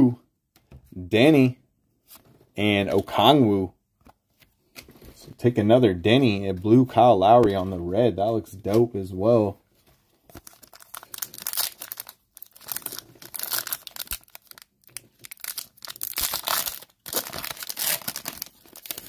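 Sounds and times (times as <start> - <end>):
foil wrapper crinkling and tearing: 10.3 - 19.0.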